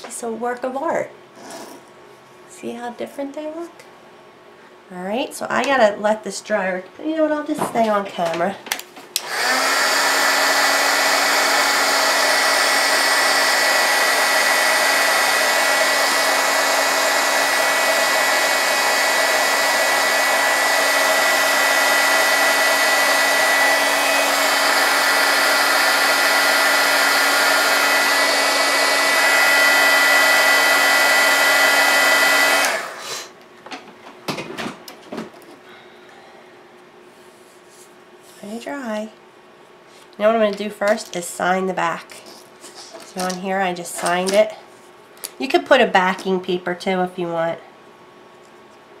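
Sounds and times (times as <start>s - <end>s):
blow dryer running: 9.2s - 33.4s.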